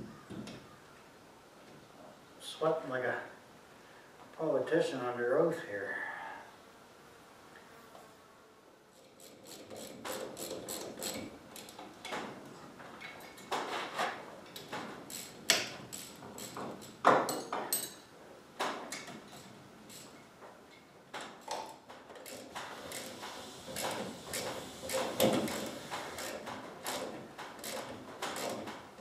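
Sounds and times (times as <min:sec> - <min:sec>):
metal tools knocking and scraping: 0:13.0 - 0:20.1.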